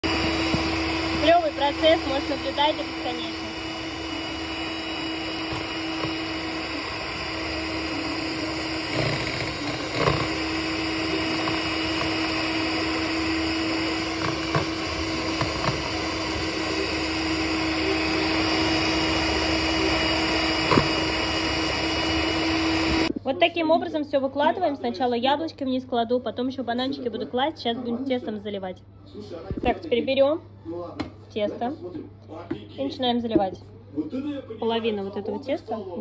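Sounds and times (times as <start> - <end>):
electric hand mixer running: 0.0 - 23.2.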